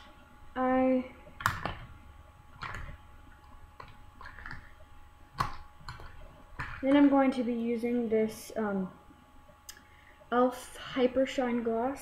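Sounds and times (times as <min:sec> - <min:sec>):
steady hum: 0:00.0 - 0:12.0
makeup products clicking and clattering: 0:03.8 - 0:04.7.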